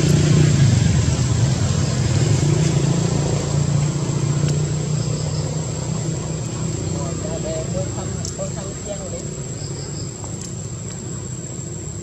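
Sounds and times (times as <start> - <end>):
engine humming: 0.0 - 12.0.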